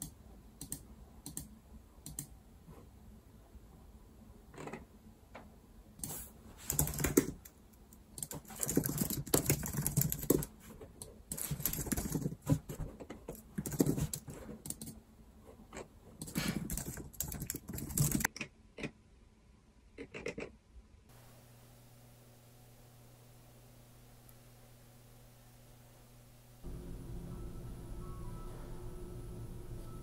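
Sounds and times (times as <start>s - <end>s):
typing on computer keyboard: 6.0s - 10.6s, 11.3s - 15.0s, 16.2s - 18.9s.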